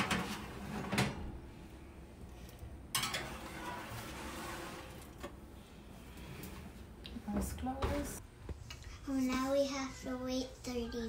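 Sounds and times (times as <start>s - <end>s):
pan scraping along rack: 0.0s - 1.2s, 2.9s - 5.4s
metal pan clanking on rack: 2.9s - 3.8s.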